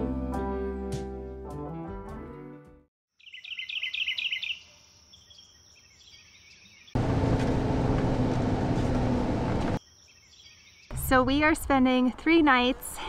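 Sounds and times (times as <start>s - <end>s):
bird chirping: 3.2s - 7.0s, 9.8s - 11.0s
vehicle driving drone: 7.0s - 9.8s.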